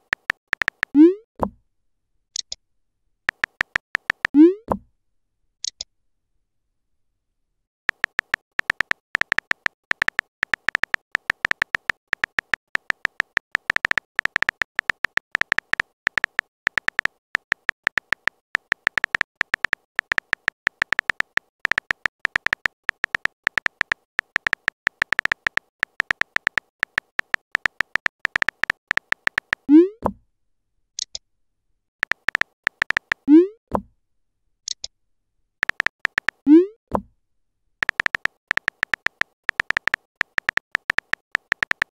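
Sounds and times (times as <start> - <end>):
keyboard typing clicks: 0.0 - 1.2, 3.3 - 4.8, 7.9 - 30.1, 32.0 - 33.5, 35.6 - 36.7, 37.8 - 41.9.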